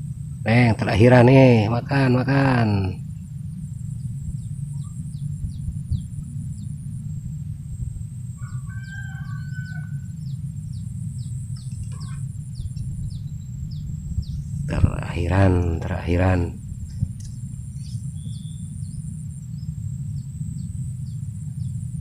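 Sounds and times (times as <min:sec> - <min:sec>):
high insect whine: 0:00.0 - 0:22.0
low rumble: 0:00.0 - 0:22.0
small bird chirping: 0:03.9 - 0:06.9, 0:08.4 - 0:22.0
rooster crowing: 0:08.3 - 0:12.3.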